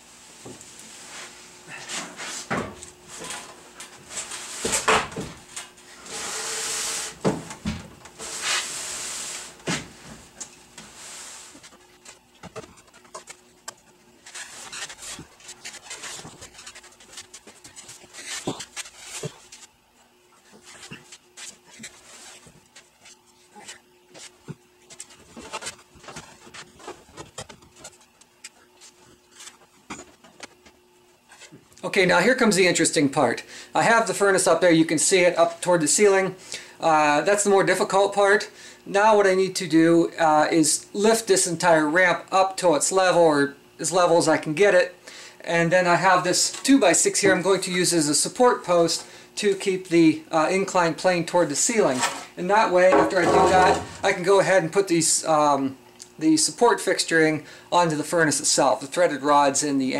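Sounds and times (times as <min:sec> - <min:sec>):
faint hum: 0:00.0 - 0:56.6
metal cabinet knocks and thumps: 0:52.9 - 0:54.1.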